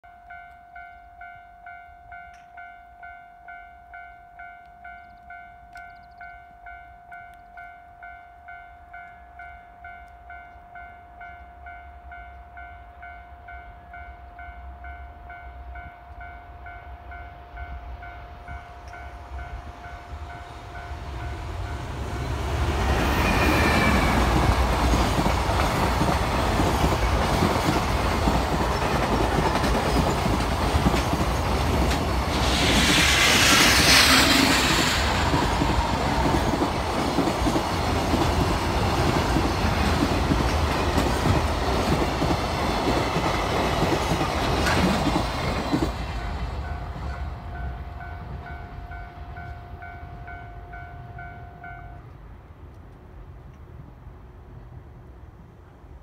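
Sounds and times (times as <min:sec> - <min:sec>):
level crossing warning bell: 0:00.0 - 0:22.5, 0:46.2 - 0:52.1
freight train rumbling past: 0:00.3 - 0:56.0.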